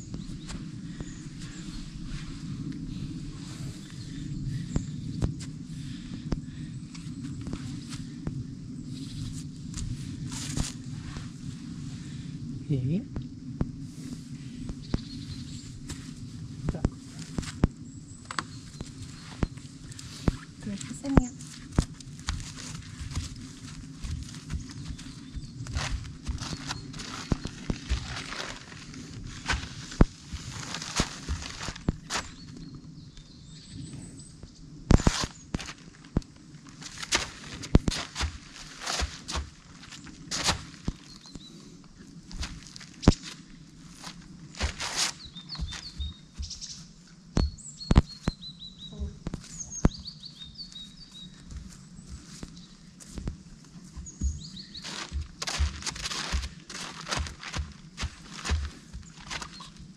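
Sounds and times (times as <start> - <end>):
small birds chirping: 0.0 - 10.8, 13.9 - 59.9
tarpaulin crinkling and snapping: 9.3 - 11.4, 15.8 - 32.8, 34.9 - 46.6, 52.2 - 59.9
horse hooves on tarpaulin: 15.9 - 32.5, 34.9 - 41.2, 42.3 - 46.8, 51.2 - 59.9
plastic tarp rustling: 25.7 - 32.3, 54.8 - 59.6.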